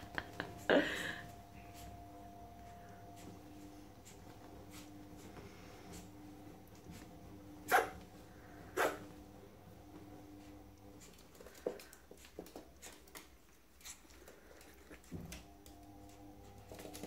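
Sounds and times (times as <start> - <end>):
low hum: 0.0 - 11.1
puppy tapping and rustling: 11.0 - 17.0.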